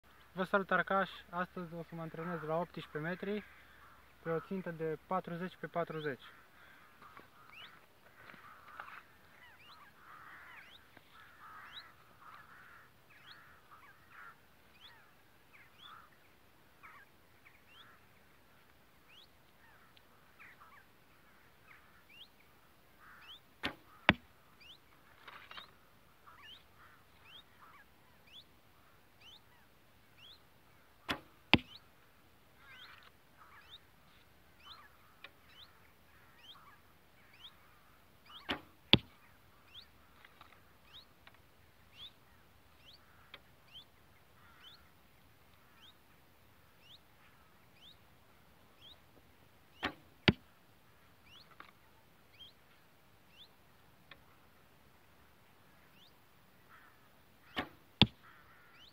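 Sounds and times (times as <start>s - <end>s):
bowstring release: 23.6s - 24.2s, 31.0s - 31.8s, 38.4s - 39.2s, 57.5s - 58.2s
arrow smacking target: 23.6s - 24.3s, 31.1s - 31.8s, 38.4s - 39.1s, 49.8s - 50.5s, 57.5s - 58.2s.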